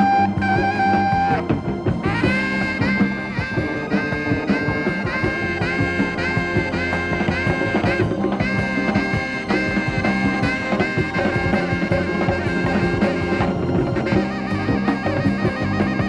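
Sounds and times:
bass guitar: 0.0s - 16.0s
drum kit steady beat: 0.0s - 16.0s
electric guitar: 0.0s - 16.0s
tenor saxophone phrase: 0.0s - 16.0s.

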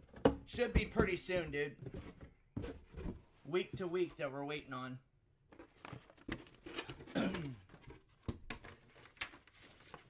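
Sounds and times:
paper envelope rustling: 7.8s - 10.0s.

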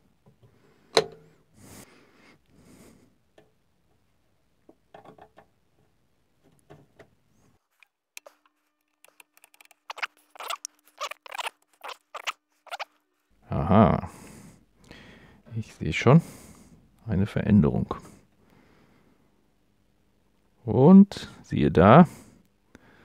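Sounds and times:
handling noise and small knocks: 0.2s - 1.3s, 3.3s - 7.2s
quick scraping sounds: 7.7s - 12.9s
faint steady hum: 12.4s - 23.0s.

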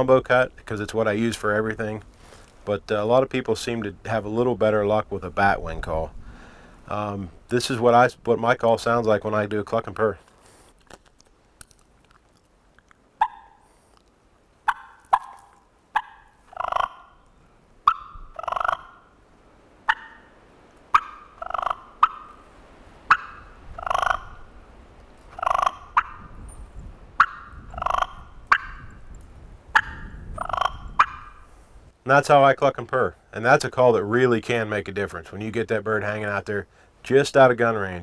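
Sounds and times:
turkey call clucks: 13.2s - 13.6s, 14.6s - 19.1s, 19.9s - 22.4s, 23.1s - 24.5s, 25.3s - 26.3s, 27.2s - 29.0s, 29.7s - 31.5s.

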